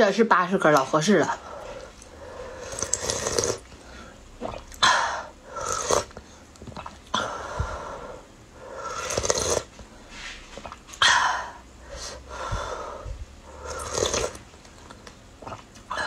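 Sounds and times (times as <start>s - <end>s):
person slurping broth: 1.3s - 6.2s, 8.7s - 10.8s, 12.9s - 14.5s.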